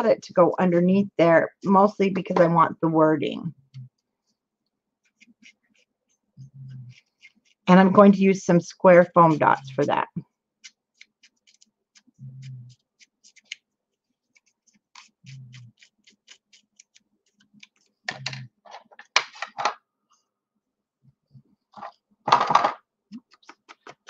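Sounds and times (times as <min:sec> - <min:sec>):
paper craft clicks and taps: 0:23.2 - 0:24.0.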